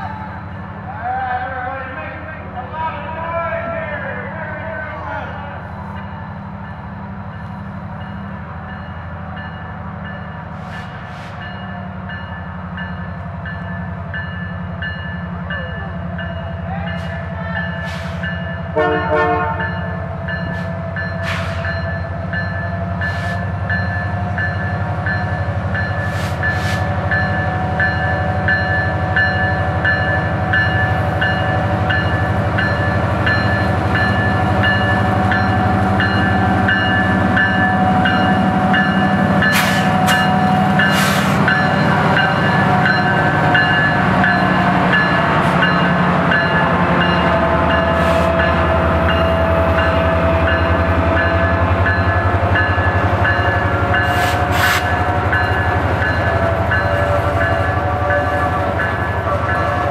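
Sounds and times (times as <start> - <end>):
diesel locomotive engine drone: 0.0 - 59.9
locomotive bell ringing: 3.1 - 59.9
train horn blast: 18.7 - 19.7, 56.4 - 59.9.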